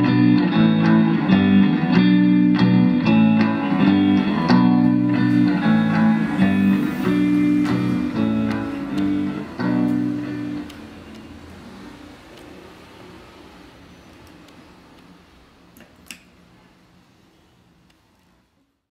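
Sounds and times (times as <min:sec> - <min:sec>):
electric guitar with effects: 0:00.0 - 0:13.7.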